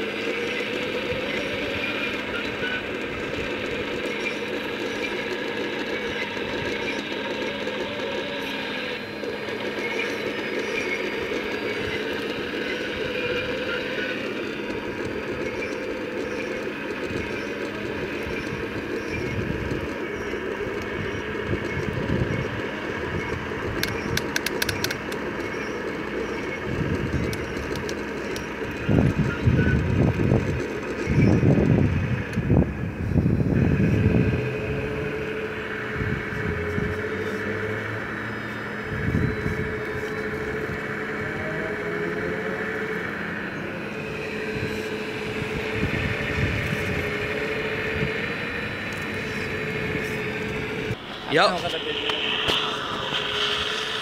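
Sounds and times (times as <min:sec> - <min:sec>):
hydraulic pump whine: 0:00.0 - 0:54.0
rumbling: 0:00.0 - 0:54.0
sharp clicks: 0:23.3 - 0:29.2.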